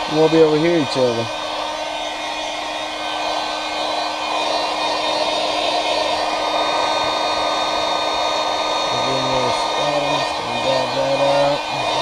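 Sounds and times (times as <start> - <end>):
hair dryer blowing: 0.0 - 12.0.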